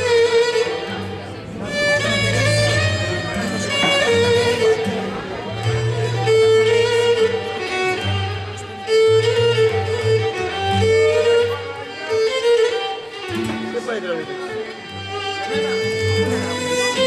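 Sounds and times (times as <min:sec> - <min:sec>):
bowed lyra melody: 0:00.0 - 0:17.0.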